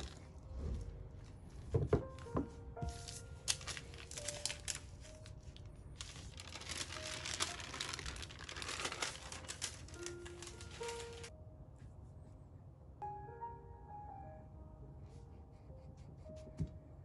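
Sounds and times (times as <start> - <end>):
baking paper crinkling: 0.0 - 0.5, 2.8 - 11.3.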